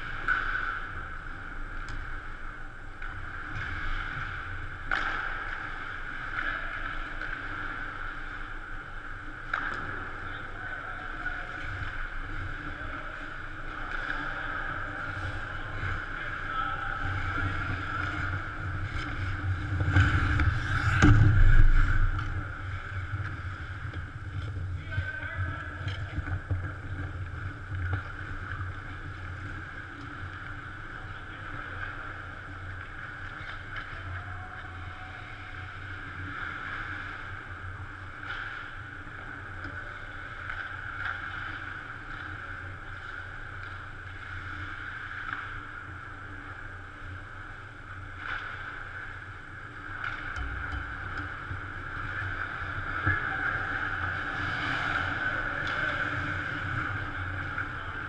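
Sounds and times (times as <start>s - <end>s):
skates and sticks scraping: 0.0s - 35.6s, 49.8s - 58.0s
arena hum and hiss: 0.0s - 58.0s.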